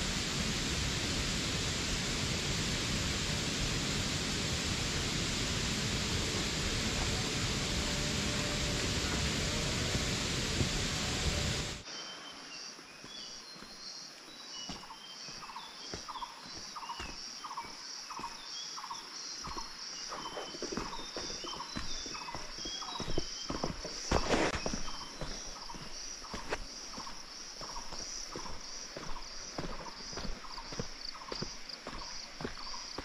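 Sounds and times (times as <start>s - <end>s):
loud rushing water: 0.0s - 11.8s
bird chirps: 11.9s - 33.0s
high insect buzz: 14.6s - 33.0s.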